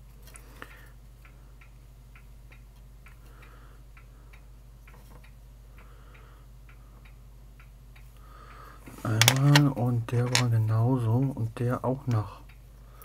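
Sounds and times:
low steady hum: 0.0 - 13.0
light sharp ticks: 0.1 - 8.6.

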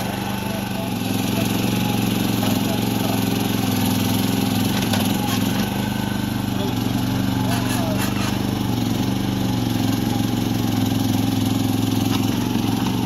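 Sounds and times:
small excavator engine running: 0.0 - 13.0
excavator arm digging soil: 6.7 - 8.8.

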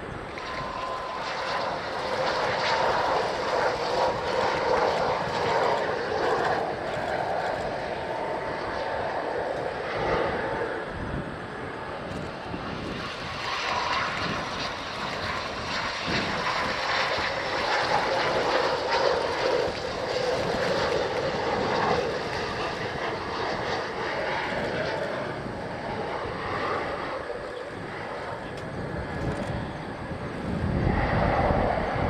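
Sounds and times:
jet engine noise: 0.0 - 32.0.

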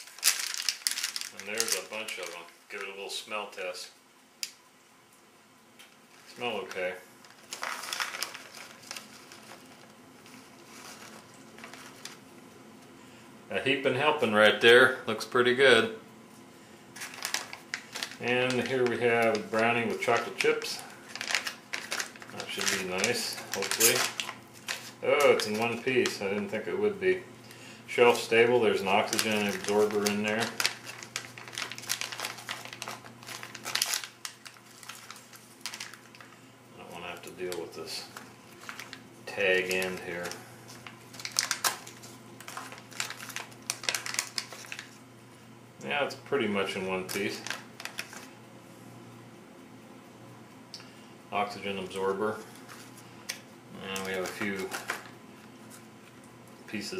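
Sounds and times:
plastic pouch crinkling: 0.0 - 3.0, 6.0 - 12.3, 16.9 - 26.8, 27.9 - 45.0, 46.6 - 48.4, 52.2 - 56.2.

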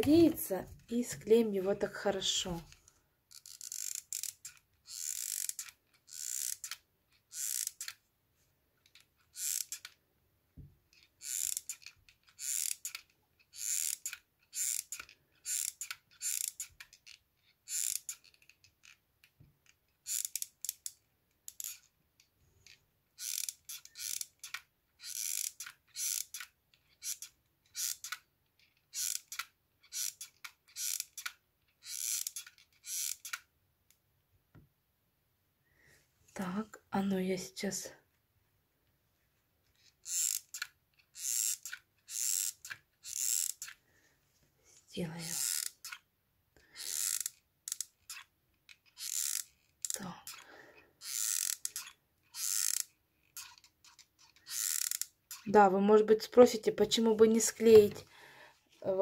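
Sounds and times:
glue gun trigger ratcheting: 2.7 - 8.0, 8.8 - 10.0, 10.9 - 21.9, 22.6 - 33.4, 39.8 - 43.8, 45.2 - 55.5.

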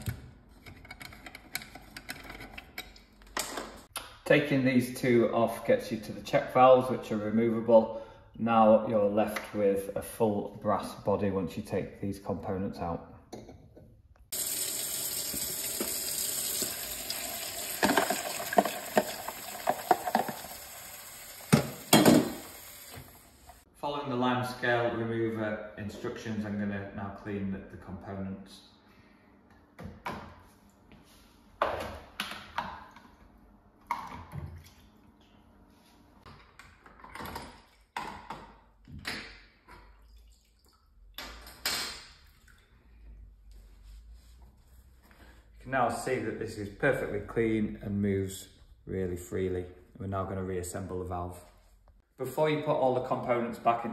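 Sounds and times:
tap running into plastic tub: 14.4 - 20.8, 21.4 - 23.2.

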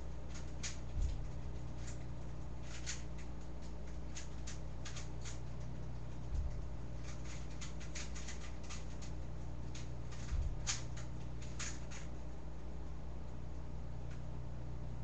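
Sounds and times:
soft low thumps: 0.8 - 2.5, 5.7 - 7.0, 9.2 - 11.4.

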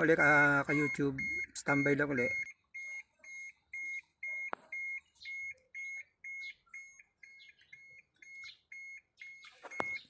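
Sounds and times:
high electronic beeping: 0.0 - 10.0.

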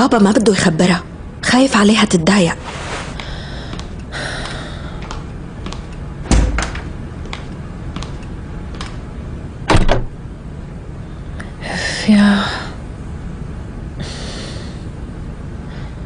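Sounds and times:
footsteps in a room: 2.6 - 9.5
heavy thumps: 3.6 - 9.1.

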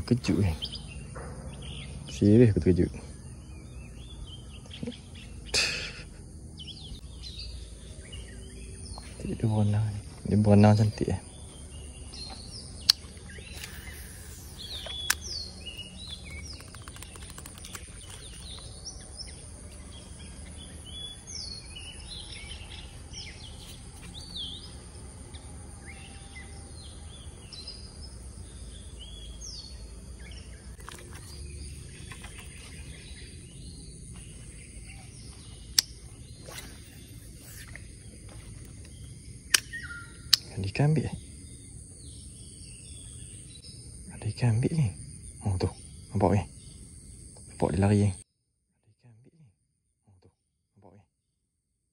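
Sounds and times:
birds chirping: 0.0 - 48.2
high insect drone: 0.0 - 48.2
sharp clicks: 12.8 - 18.8, 35.7 - 36.8, 38.8 - 40.5.

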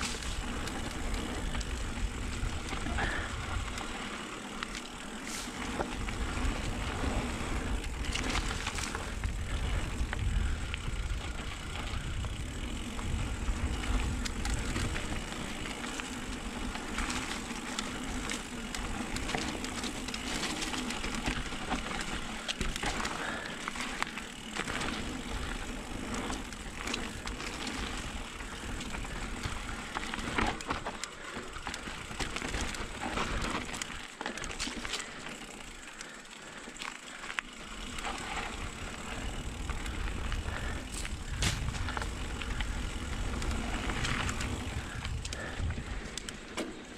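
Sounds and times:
wind rumbling on microphone: 0.0 - 3.9, 5.4 - 23.0, 37.9 - 46.3
bike knocking and rattling: 0.0 - 46.9
bike tyres crunching over dirt: 0.0 - 46.9.

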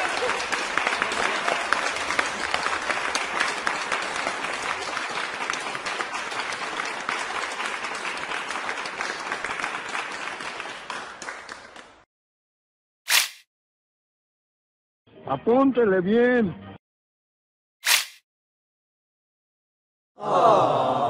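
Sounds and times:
crowd applauding: 0.0 - 12.1.

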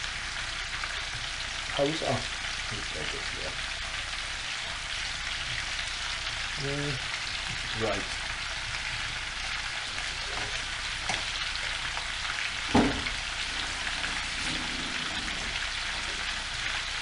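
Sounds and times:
food sizzling in oil: 0.0 - 17.0
knock on pan: 12.7 - 13.2.

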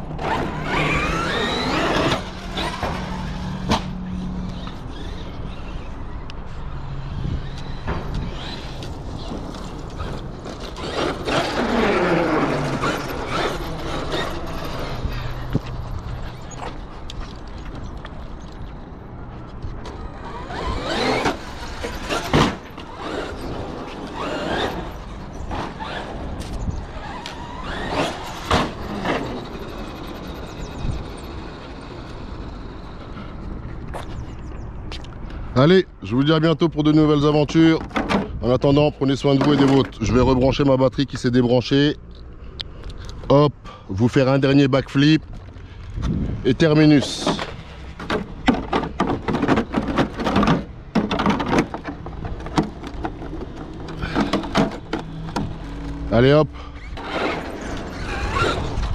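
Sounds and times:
electric motor whining: 0.0 - 17.2, 19.8 - 33.2, 52.0 - 58.9.

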